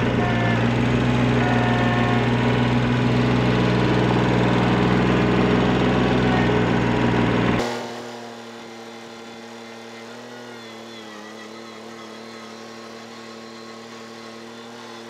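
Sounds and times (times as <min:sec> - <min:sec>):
loader dumping dirt: 0:00.0 - 0:08.0
diesel tractor engine running: 0:00.0 - 0:10.4.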